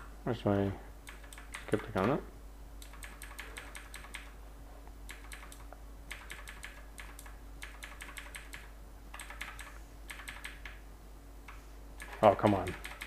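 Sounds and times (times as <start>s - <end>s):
computer keyboard clicking: 1.1s - 2.2s, 2.8s - 4.3s, 5.1s - 10.8s, 11.5s - 13.0s.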